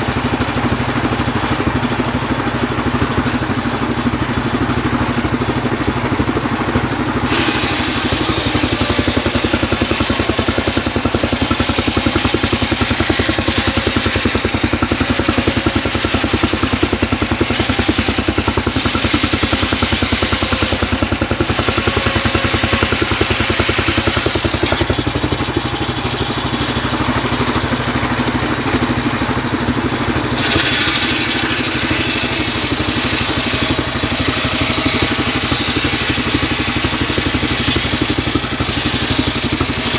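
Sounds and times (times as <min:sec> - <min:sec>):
saw engine running under load: 0:00.0 - 0:39.9
saw blade hissing through wood: 0:07.2 - 0:25.0, 0:30.3 - 0:39.9.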